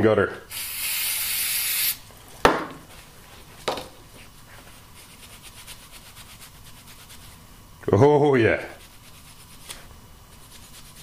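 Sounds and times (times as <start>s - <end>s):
aerosol spray hissing: 0.5s - 2.0s.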